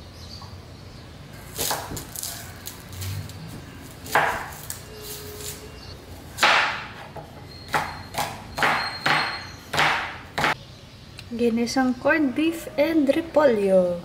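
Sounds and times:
knife chopping on cutting board: 0:01.5 - 0:02.8, 0:04.0 - 0:04.8, 0:06.4 - 0:10.6.

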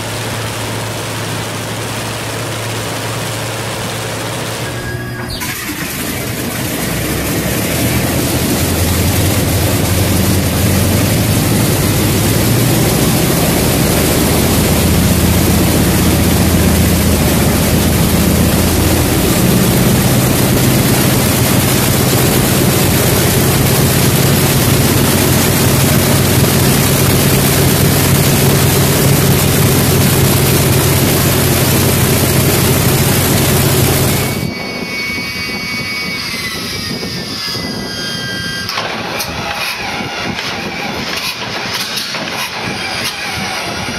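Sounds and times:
radial aircraft engine running: 0:00.0 - 0:43.9
heavy rushing noise: 0:05.5 - 0:37.8.

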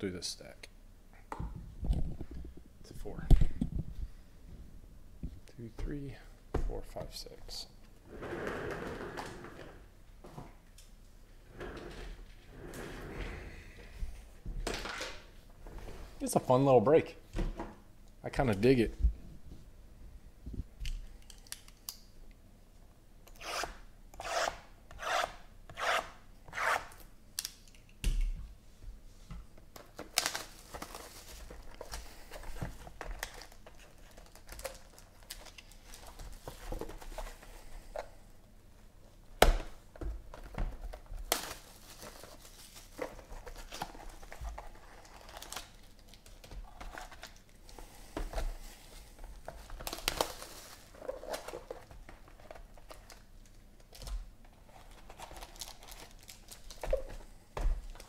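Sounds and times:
card packs ripping open: 0:29.8 - 0:32.0, 0:41.2 - 0:47.4, 0:49.6 - 0:51.9, 0:54.8 - 0:56.9
foil crinkling: 0:29.8 - 0:36.5, 0:41.0 - 0:47.6, 0:48.8 - 0:53.6, 0:54.6 - 0:57.1.

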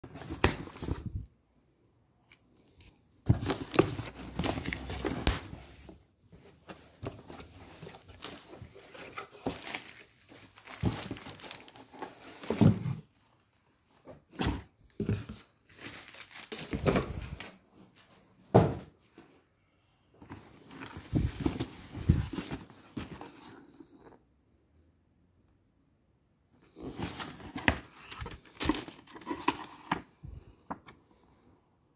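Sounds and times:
plastic packing crinkling: 0:08.0 - 0:12.5, 0:15.7 - 0:17.5.

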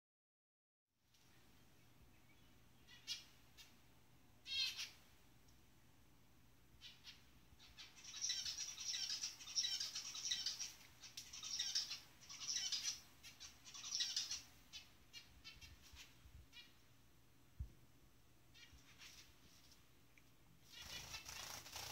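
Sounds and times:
finches chirping and chattering: 0:02.1 - 0:03.7, 0:04.4 - 0:05.0, 0:06.8 - 0:16.8, 0:18.5 - 0:19.4, 0:20.6 - 0:21.9.

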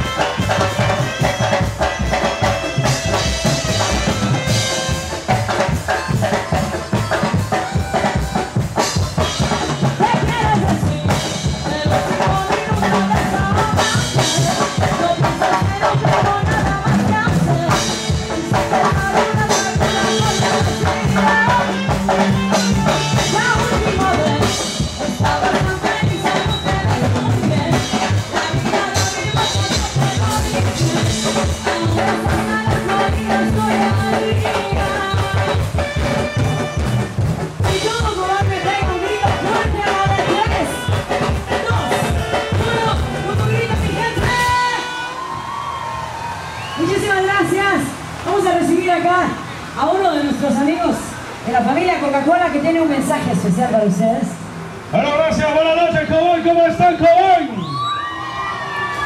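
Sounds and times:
drum kit beat: 0:00.0 - 0:45.2
live band music: 0:00.0 - 0:59.0.

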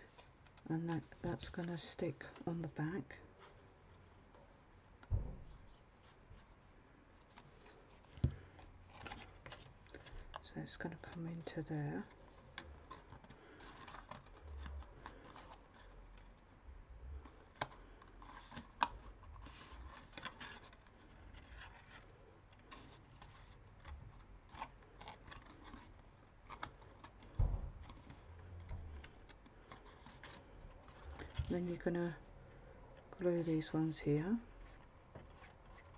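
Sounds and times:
dull thump: 0:05.1 - 0:05.7, 0:27.3 - 0:28.0
paper rubbing: 0:05.4 - 0:08.0
card being folded: 0:05.4 - 0:16.5, 0:17.2 - 0:32.2.

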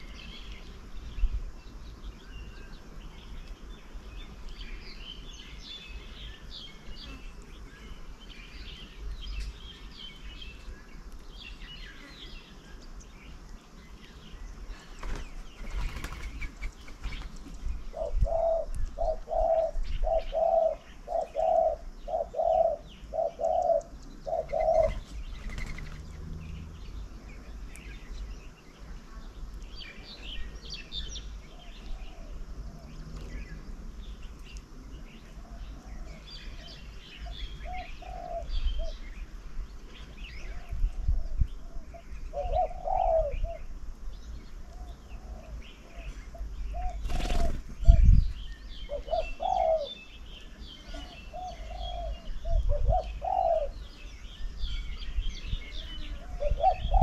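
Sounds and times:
birds chirping: 0:00.0 - 0:57.0
low hooting bird call: 0:17.9 - 0:25.1, 0:35.2 - 0:39.1, 0:40.4 - 0:43.7, 0:48.8 - 0:50.2, 0:50.8 - 0:53.9, 0:55.8 - 0:57.0.

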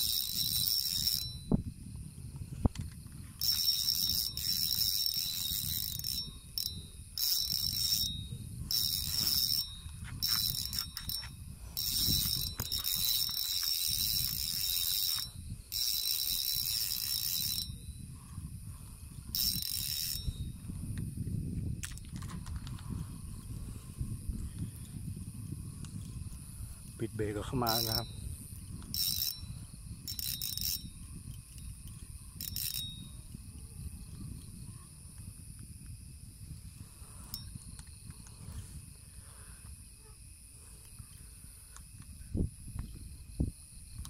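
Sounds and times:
fishing reel drag buzzing: 0:00.0 - 0:40.0.

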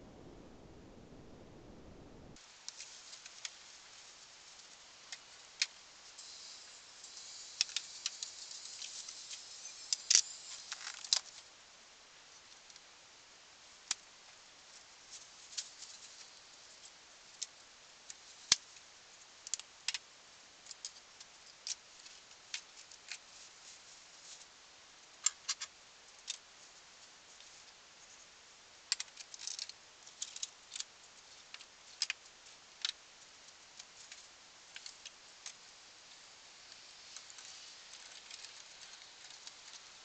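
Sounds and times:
rustling: 0:33.4 - 0:40.0.

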